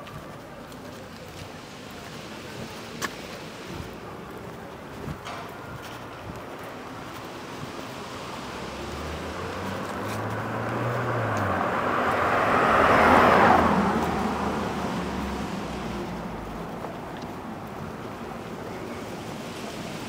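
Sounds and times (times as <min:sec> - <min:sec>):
car passing by: 0:06.8 - 0:20.0.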